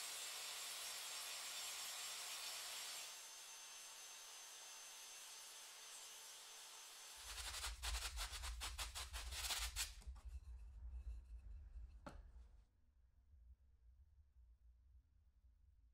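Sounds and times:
wooden dowel rubbing and clicking: 7.2 - 12.2.

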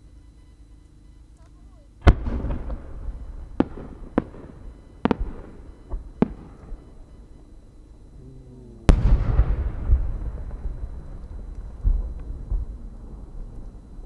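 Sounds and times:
deep firework boom: 2.0 - 7.3, 8.4 - 14.0.

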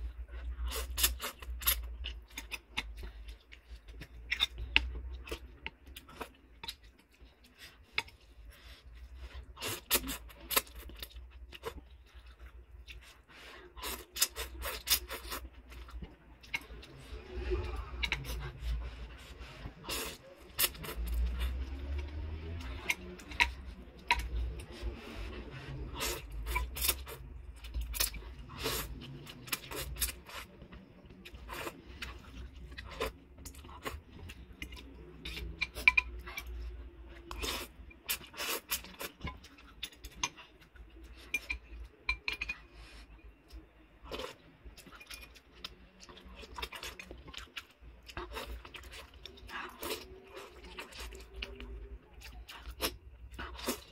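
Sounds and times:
slurping noodles: 16.5 - 23.2, 24.2 - 27.3
cutlery clinking against bowl: 34.6 - 36.5, 41.2 - 42.7.

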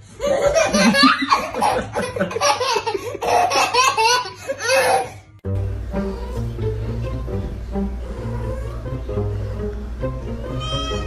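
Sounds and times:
baby belly-laughing: 0.2 - 5.2.

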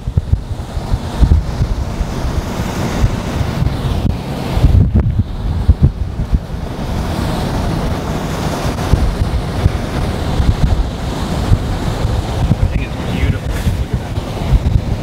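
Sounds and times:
strong wind rushing: 0.0 - 15.0
wind gusts thumping microphone: 0.0 - 15.0.

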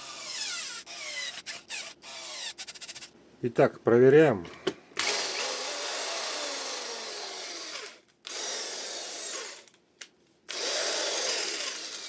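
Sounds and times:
drill motor running: 0.0 - 3.0, 5.0 - 9.7, 10.5 - 12.0.

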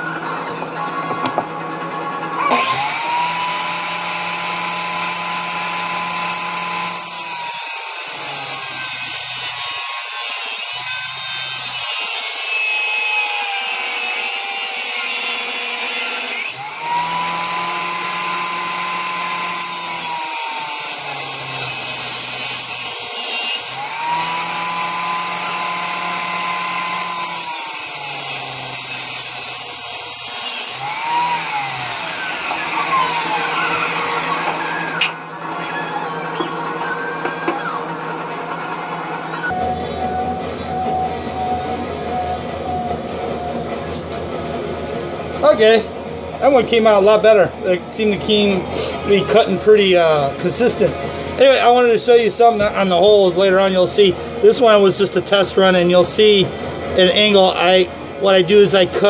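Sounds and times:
power saw cutting wood: 2.4 - 39.6.

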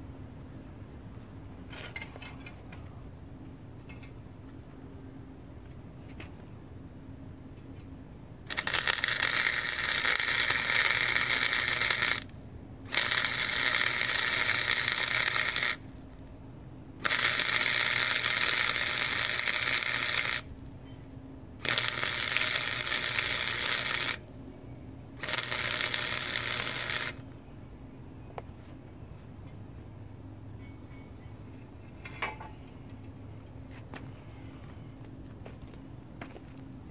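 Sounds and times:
welder arc crackling and sizzling: 8.5 - 12.3, 12.9 - 15.8, 17.0 - 20.5, 21.6 - 24.2, 25.2 - 27.2.

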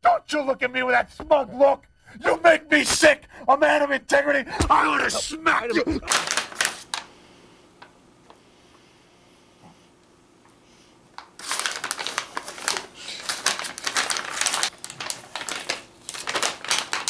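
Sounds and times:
plastic bag crinkling: 6.0 - 7.1, 11.2 - 17.0.

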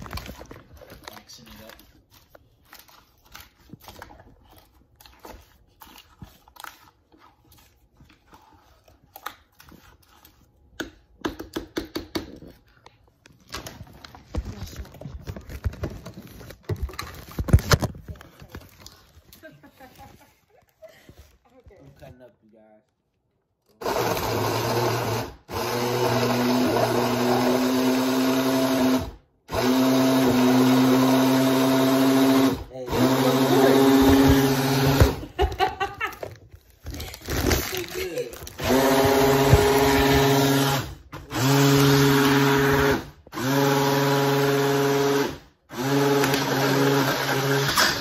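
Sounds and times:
blender crushing ice: 23.7 - 35.6, 37.0 - 48.0.

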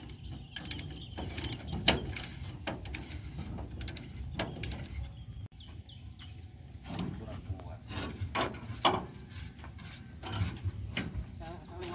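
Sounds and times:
steel chain clanking on metal: 0.0 - 5.1, 10.2 - 11.9.

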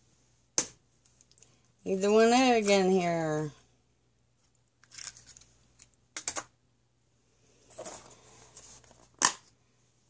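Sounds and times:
plastic container rustling and scraping: 7.6 - 9.2.

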